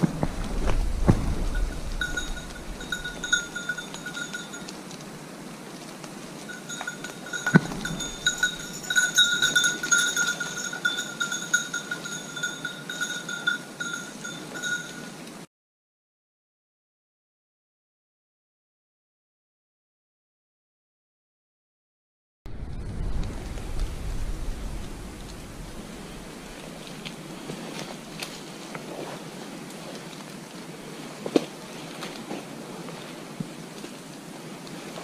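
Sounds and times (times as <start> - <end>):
rustling brush: 0.0 - 15.4, 23.0 - 35.0
dog collar bell jangling: 1.6 - 4.7, 6.5 - 15.2.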